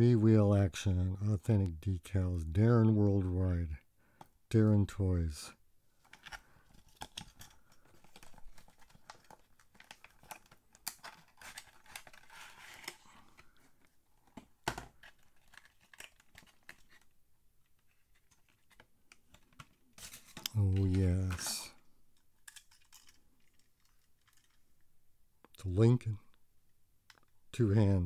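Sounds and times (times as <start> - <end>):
cardboard rustling and crinkling: 6.0 - 21.7.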